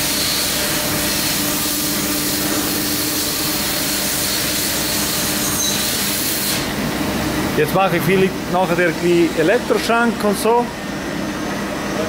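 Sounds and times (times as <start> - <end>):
coolant spray hiss: 0.0 - 6.8
machine hum: 0.0 - 12.0.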